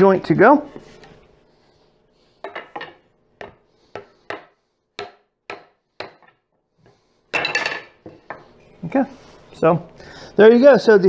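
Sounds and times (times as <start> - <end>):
rubber mallet knocking wood: 3.4 - 6.3.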